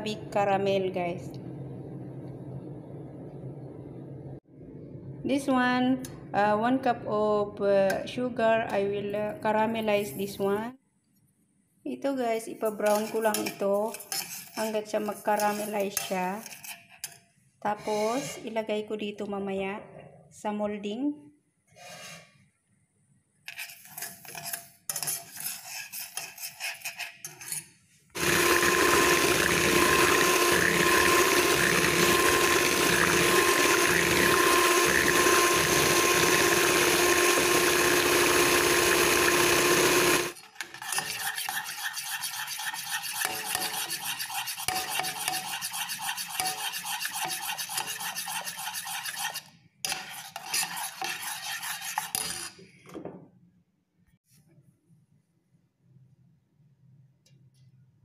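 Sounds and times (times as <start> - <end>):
spoon scraping sugar in a pan: 12.6 - 18.5, 23.5 - 27.8, 40.3 - 52.6.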